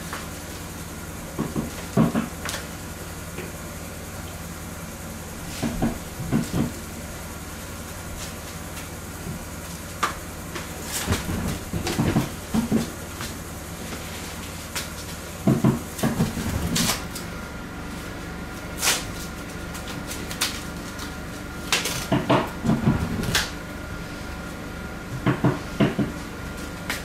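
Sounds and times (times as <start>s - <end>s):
steady low hum: 0.0s - 27.0s
dull knocks and thumps: 1.3s - 2.6s, 5.3s - 7.0s, 9.2s - 14.0s, 15.4s - 17.1s, 22.1s - 23.6s, 25.1s - 26.2s.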